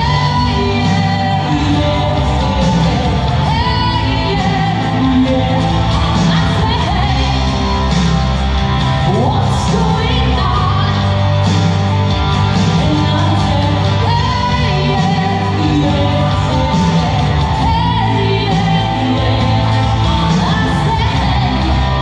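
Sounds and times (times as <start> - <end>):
woman singing through loudspeakers: 0.0 - 7.9, 9.0 - 11.2, 12.6 - 22.0.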